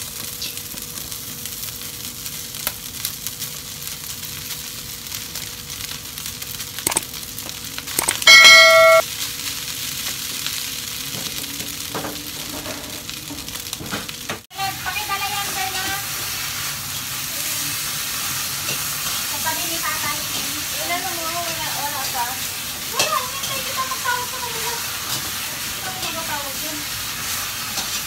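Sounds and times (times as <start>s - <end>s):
meat and rice sizzling in a wok: 0.0s - 7.9s, 9.0s - 28.0s
loud ringing ding: 8.0s - 9.0s.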